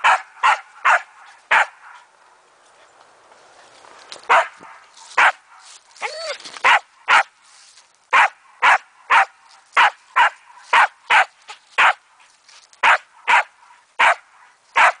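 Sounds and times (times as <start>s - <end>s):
dog barking: 0.0s - 2.1s, 4.3s - 5.4s, 6.6s - 7.3s, 8.1s - 12.0s, 12.8s - 14.2s, 14.8s - 15.0s.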